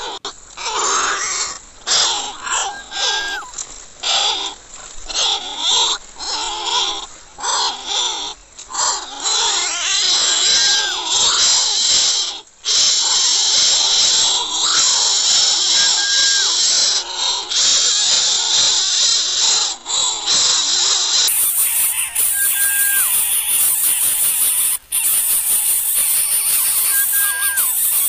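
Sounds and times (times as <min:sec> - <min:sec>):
nestlings rasping begging calls: 0:02.2 - 0:03.5, 0:15.7 - 0:16.5, 0:21.3 - 0:28.0
nestlings hissing: 0:21.3 - 0:28.0.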